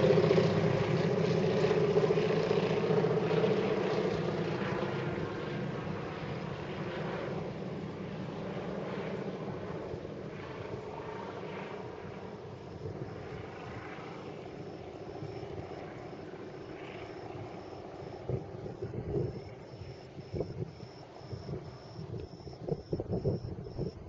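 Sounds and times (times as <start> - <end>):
propeller aircraft engine droning: 0.0 - 24.0.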